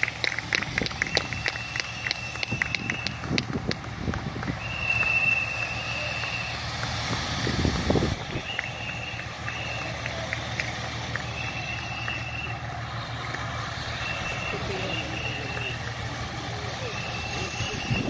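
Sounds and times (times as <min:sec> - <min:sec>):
engine hum: 0:00.0 - 0:18.0
racing bicycles rushing past: 0:00.0 - 0:18.0
high whistle blasts: 0:00.8 - 0:03.4, 0:04.6 - 0:06.7, 0:08.2 - 0:10.2, 0:11.1 - 0:12.7, 0:13.9 - 0:18.0.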